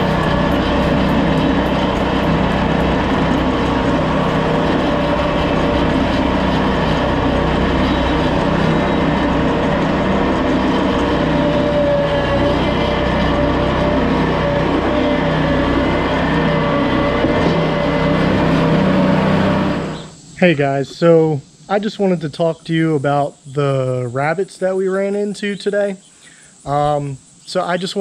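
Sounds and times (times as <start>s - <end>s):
engine drone: 0.0s - 23.9s.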